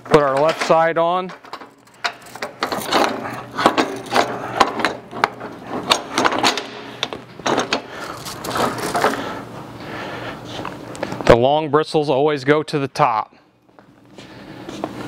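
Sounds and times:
chain rattling and clicking: 0:01.4 - 0:05.0.

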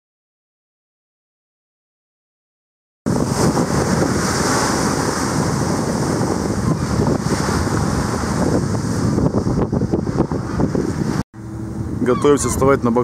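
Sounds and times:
sea rushing: 0:03.1 - 0:13.0
wind buffeting microphone: 0:03.1 - 0:13.0.

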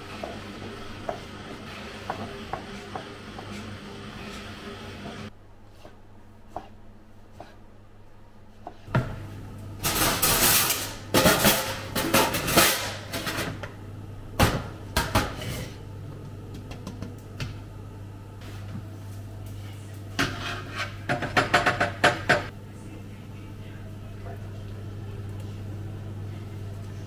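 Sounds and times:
metal pans clattering and scraping: 0:09.8 - 0:13.6, 0:20.2 - 0:22.5.

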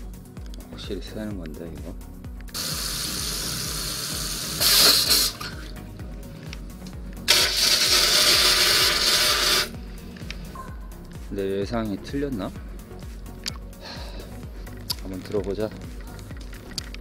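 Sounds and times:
water rushing from tap: 0:02.6 - 0:05.4, 0:07.3 - 0:09.7
shower water gushing: 0:02.6 - 0:05.5, 0:07.3 - 0:09.7.

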